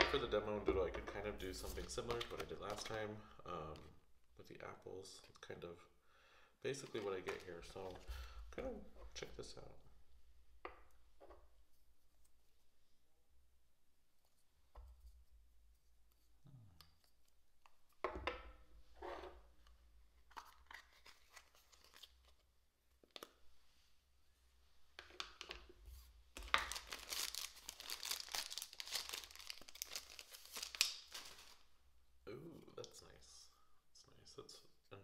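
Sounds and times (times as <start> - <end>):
plastic packaging crinkling and tearing: 20.4 - 22.4, 26.4 - 31.7.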